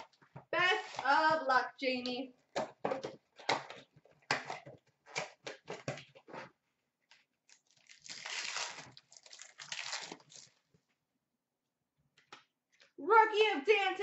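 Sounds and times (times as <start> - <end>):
card packs crinkling: 7.5 - 10.6
wrapper tearing: 7.5 - 10.6.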